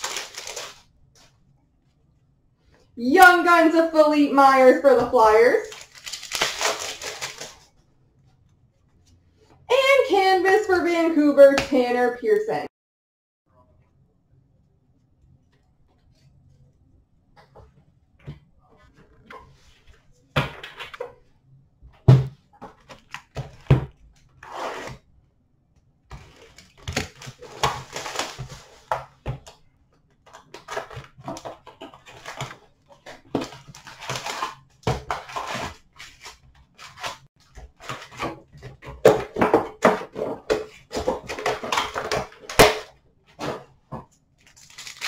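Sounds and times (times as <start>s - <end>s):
cardboard and plastic packaging rustling: 0.0s - 1.4s, 5.6s - 7.8s, 26.1s - 29.6s, 30.2s - 45.0s.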